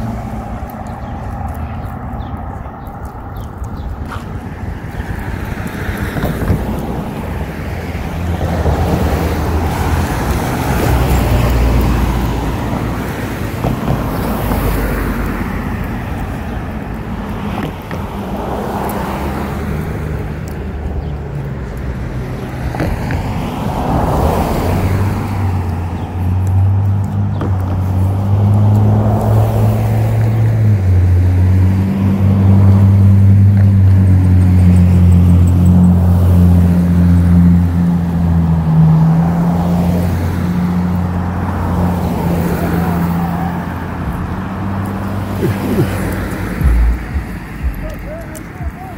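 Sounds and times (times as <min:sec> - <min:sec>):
cars passing: 0:00.0 - 0:48.9
deep low hum: 0:45.4 - 0:48.0.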